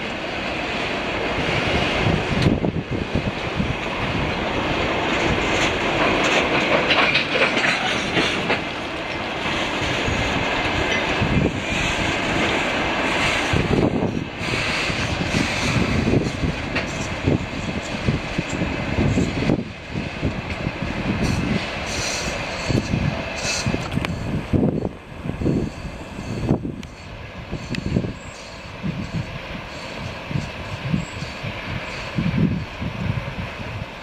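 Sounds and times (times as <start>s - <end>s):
train wheels clattering on rails: 0.0s - 34.0s.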